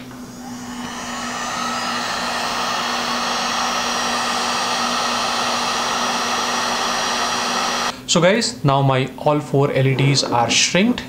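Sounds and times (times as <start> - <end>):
heat gun blowing: 0.0 - 8.0.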